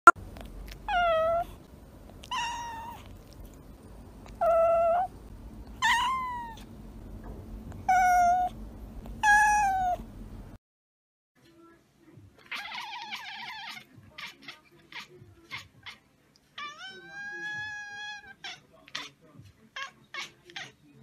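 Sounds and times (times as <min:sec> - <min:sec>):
cat meowing: 0:00.8 - 0:01.6, 0:02.2 - 0:03.4, 0:04.3 - 0:05.1, 0:05.8 - 0:06.7, 0:07.8 - 0:08.6, 0:09.2 - 0:10.0, 0:12.4 - 0:16.0, 0:16.6 - 0:19.1.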